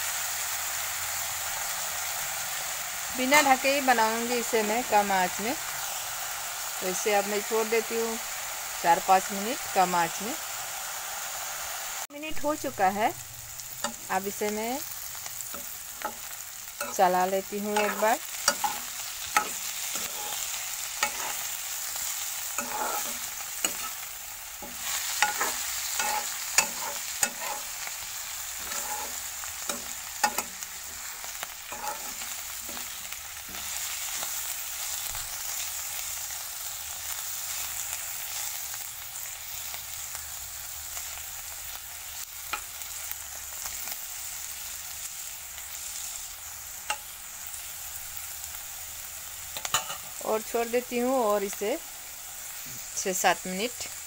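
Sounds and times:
vegetables sizzling in oil: 0:00.0 - 0:54.0
metal spatula scraping pan: 0:17.6 - 0:34.4.

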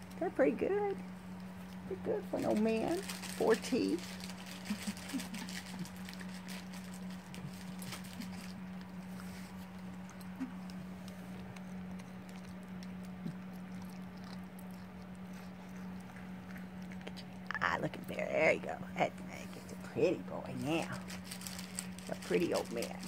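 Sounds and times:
steady low hum: 0:00.0 - 0:23.0
dog chewing wet smacks: 0:04.3 - 0:17.6.

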